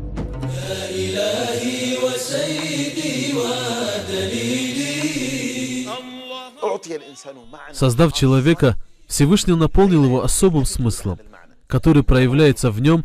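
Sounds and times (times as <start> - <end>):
person chanting melodically: 0.5 - 10.1.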